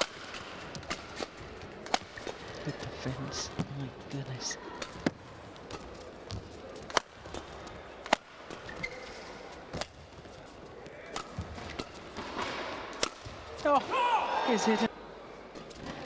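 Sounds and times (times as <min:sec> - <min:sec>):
racket striking shuttlecock: 0:00.0 - 0:02.4, 0:04.7 - 0:08.6, 0:11.1 - 0:13.4
low arena background: 0:00.0 - 0:16.0.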